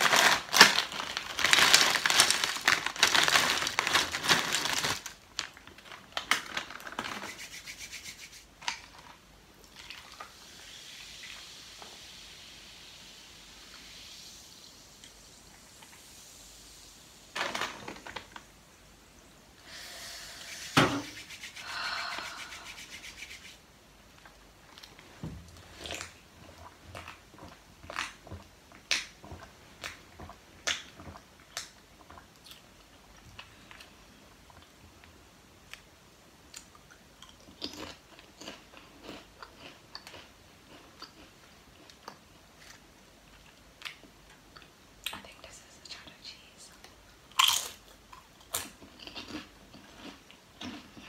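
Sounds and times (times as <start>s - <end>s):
potato chips crunching: 0.0s - 7.6s, 36.6s - 44.0s, 47.3s - 51.0s
soft crackling hiss: 0.0s - 51.0s.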